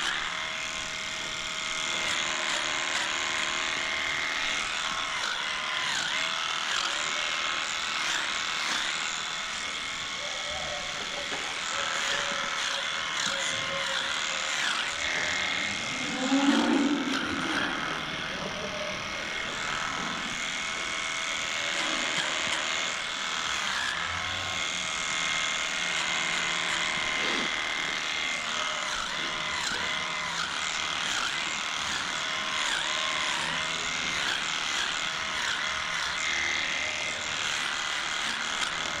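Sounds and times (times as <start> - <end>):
cattle calling: 10.2 - 19.3.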